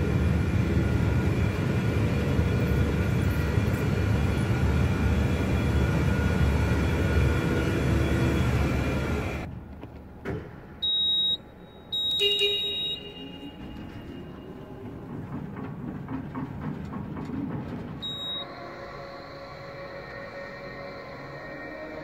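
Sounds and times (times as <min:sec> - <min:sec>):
low hum of truck: 0:00.0 - 0:22.0
high steady warning beeps: 0:10.8 - 0:13.9, 0:18.0 - 0:18.5.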